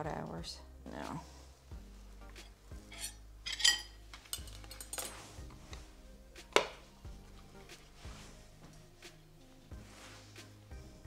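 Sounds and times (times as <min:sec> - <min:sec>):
cutlery clinking on a plate: 0:02.9 - 0:05.2.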